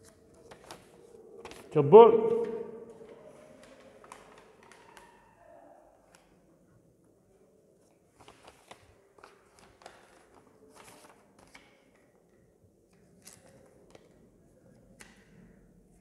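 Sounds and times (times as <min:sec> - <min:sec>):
paper taps and rustles: 0:00.0 - 0:01.7, 0:02.4 - 0:05.1, 0:08.1 - 0:14.2.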